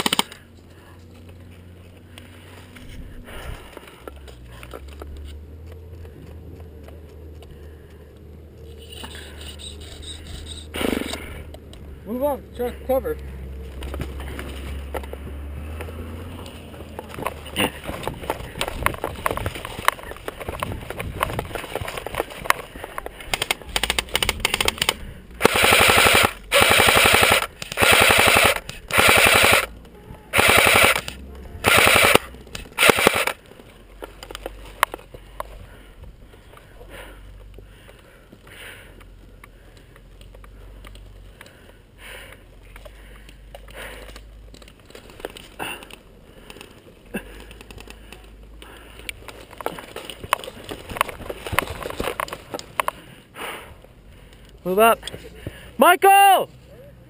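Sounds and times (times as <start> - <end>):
airsoft rifle full-auto bursts: 0.0 - 0.4, 23.3 - 29.7, 30.3 - 33.4.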